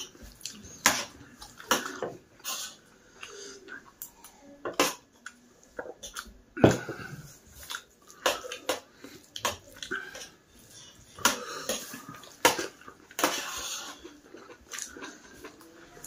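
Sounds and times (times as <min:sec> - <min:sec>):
wet chewing: 0:00.0 - 0:04.2, 0:11.1 - 0:16.0.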